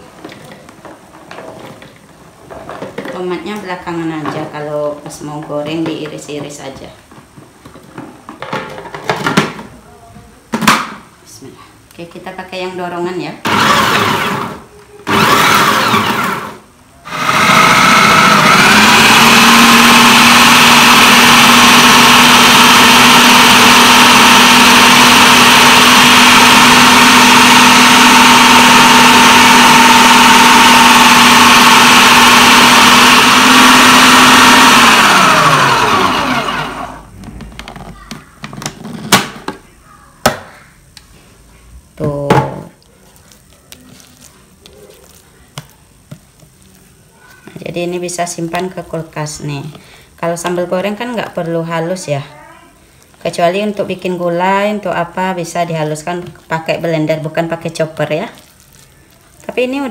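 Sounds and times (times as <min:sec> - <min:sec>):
food processor motor whine: 0:13.4 - 0:37.6.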